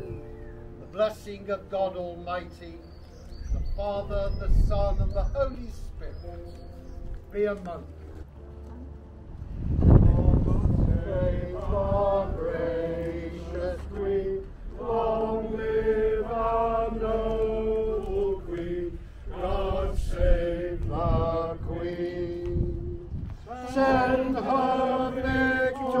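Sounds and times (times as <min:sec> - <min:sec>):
wind rumble on microphone: 0:03.3 - 0:07.3, 0:09.2 - 0:26.0
congregation singing: 0:09.6 - 0:26.0.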